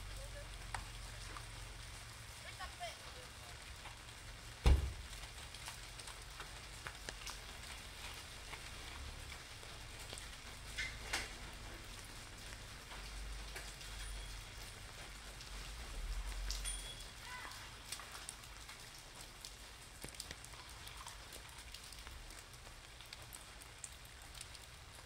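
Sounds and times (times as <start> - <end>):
rain on pavement: 0.0 - 25.0
rain pattering on umbrella: 0.0 - 25.0
sharp thump: 4.6 - 5.0.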